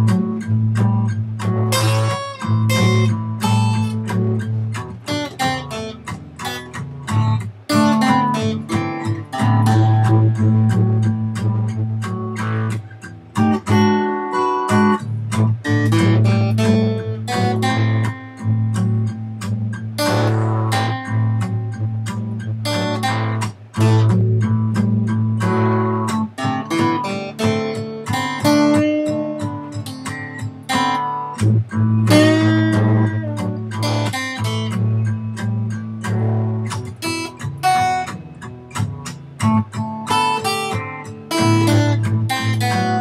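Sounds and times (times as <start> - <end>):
acoustic guitar picked notes: 0.0 - 43.0
low guitar bass note: 31.5 - 34.2.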